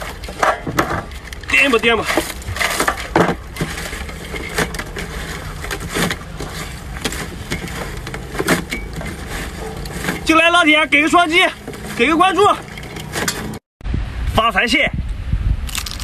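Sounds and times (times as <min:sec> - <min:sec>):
steady low rumble: 0:13.8 - 0:16.0.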